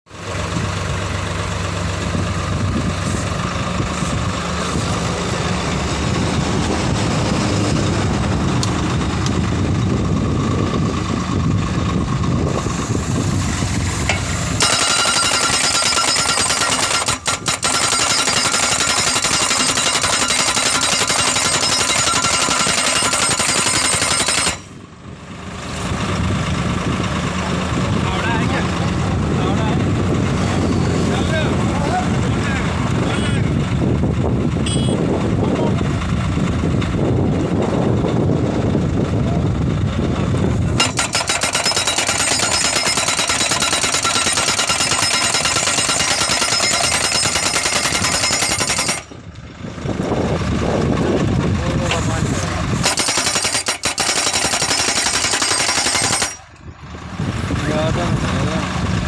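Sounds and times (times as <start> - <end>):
tractor engine running: 0.1 - 59.0
post driver hammering steel post: 14.1 - 24.8, 40.8 - 49.2, 52.8 - 56.5.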